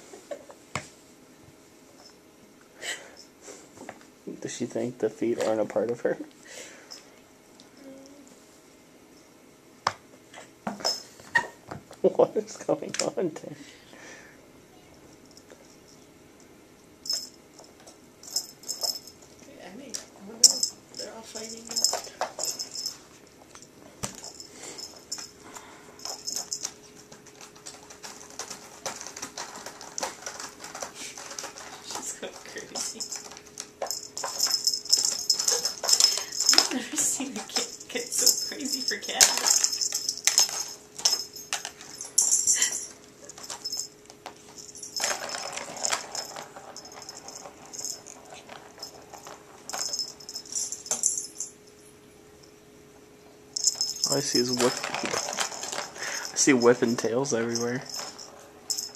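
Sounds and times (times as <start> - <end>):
high rattling: 17.0 - 19.3, 20.3 - 23.0, 24.1 - 51.7, 53.6 - 58.9.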